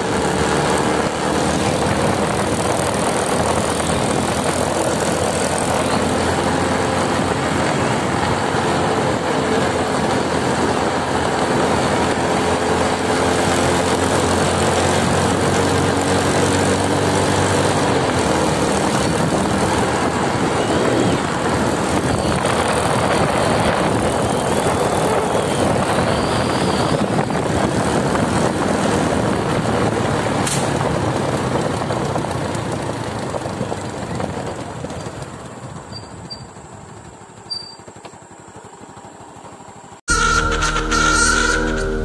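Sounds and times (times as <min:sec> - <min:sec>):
wind rushing over microphone: 0:00.0 - 0:32.4
motorcycle engine: 0:00.0 - 0:42.0.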